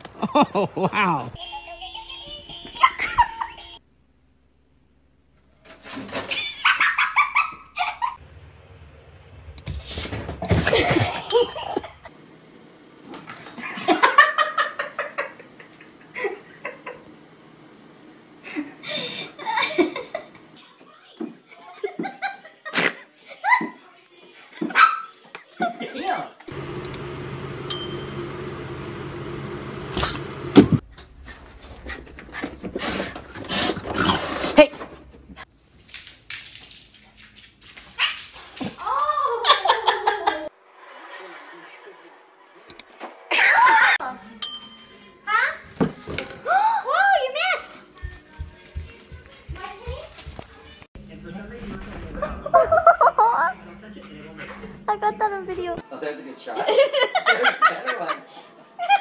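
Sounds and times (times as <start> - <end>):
person laughing: 0.1 - 1.4, 2.8 - 3.7, 10.5 - 12.0.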